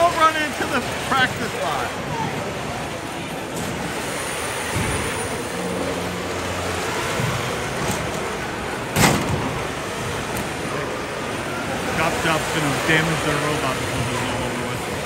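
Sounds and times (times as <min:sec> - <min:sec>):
hubbub of hall crowd: 0:00.0 - 0:15.0
loud sharp thump: 0:08.9 - 0:09.5.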